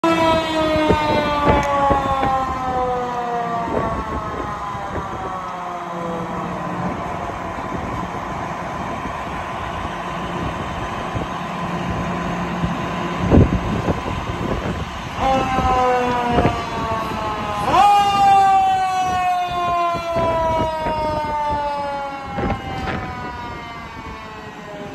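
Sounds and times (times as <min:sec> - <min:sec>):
fire engine mechanical siren: 0:00.0 - 0:24.9
engine running: 0:04.6 - 0:18.6.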